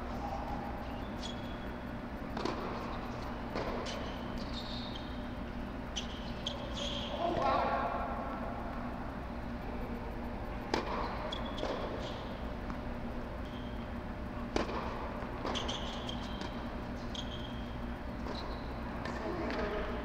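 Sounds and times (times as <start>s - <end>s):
tennis shoes squeaking on court: 0.8s - 7.4s, 10.7s - 12.8s, 13.4s - 14.0s, 14.6s - 19.8s
tennis racket hitting ball: 14.5s - 16.5s.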